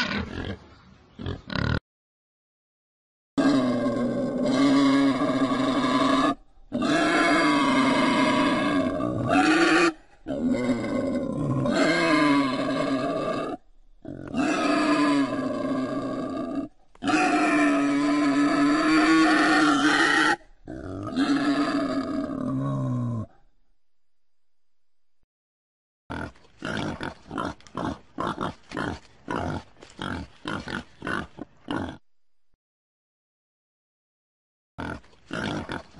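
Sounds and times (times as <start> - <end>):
wild boar grunting: 3.4 - 23.4, 26.1 - 32.0.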